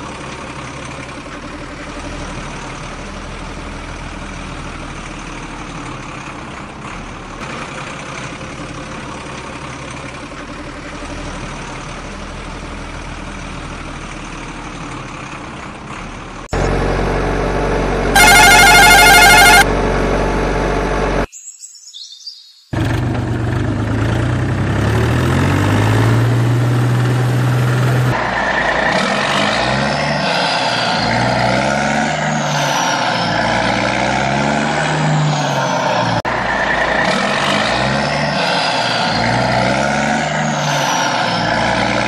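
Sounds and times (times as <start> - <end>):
truck engine idling: 0.0 - 21.3, 22.8 - 42.0
falling whistle: 18.2 - 19.6
loud warbling tone: 18.2 - 19.7, 29.8 - 42.0.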